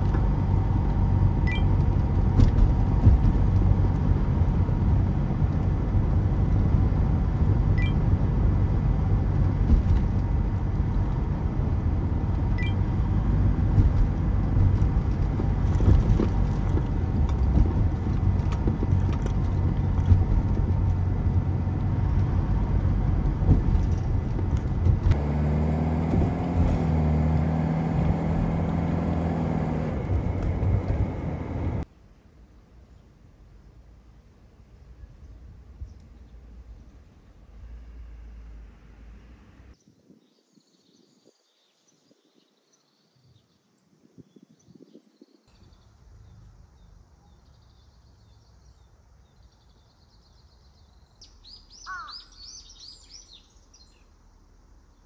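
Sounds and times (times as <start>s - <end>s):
van engine hum: 0.0s - 32.6s
low outdoor rumble: 0.0s - 39.8s
road noise: 0.0s - 39.8s, 45.6s - 55.0s
birds twittering and trilling: 39.8s - 54.1s
bird loud falling chirps: 51.2s - 54.0s.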